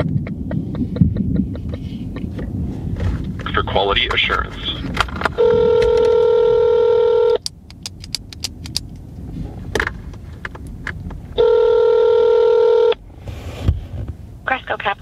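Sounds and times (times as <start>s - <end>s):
telephone ringback tone: 5.4s - 7.4s, 11.4s - 13.0s.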